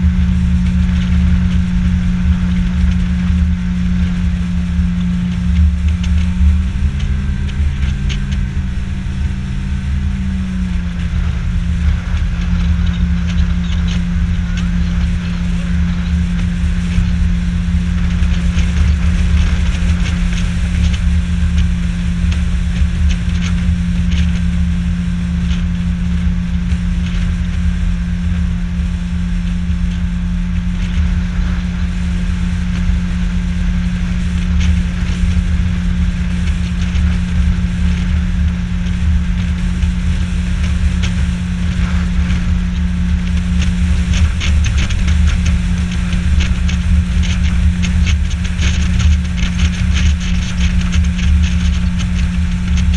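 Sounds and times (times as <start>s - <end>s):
outboard motor running: 0.0s - 52.9s
water slapping against hull: 0.0s - 52.9s.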